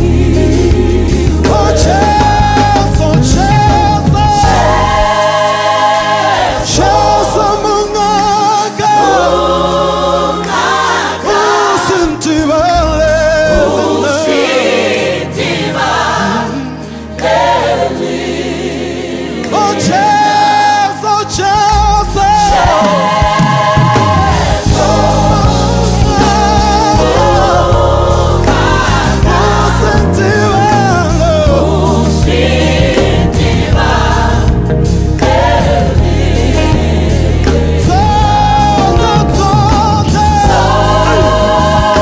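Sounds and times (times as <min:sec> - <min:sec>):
low bass line: 0:00.0 - 0:05.3, 0:21.6 - 0:42.0
gospel group singing in harmony: 0:00.0 - 0:42.0.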